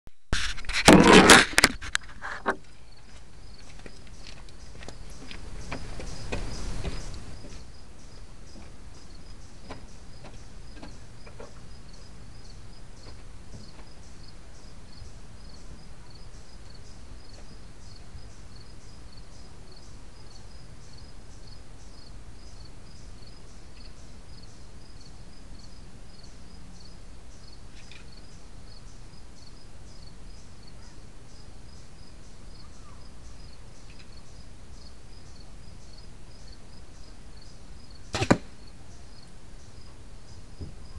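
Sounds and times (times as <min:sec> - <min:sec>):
microphone hiss: 0:00.1 - 0:40.9
insects chirping: 0:01.2 - 0:40.9.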